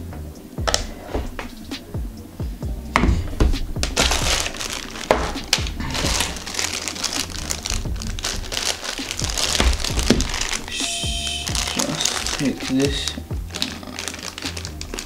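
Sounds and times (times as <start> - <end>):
background music with steady beat: 0.0 - 15.0
plastic film crinkling: 3.6 - 15.0.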